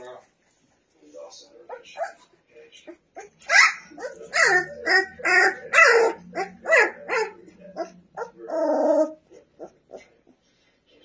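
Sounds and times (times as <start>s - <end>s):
puppy barking: 3.2s - 10.1s.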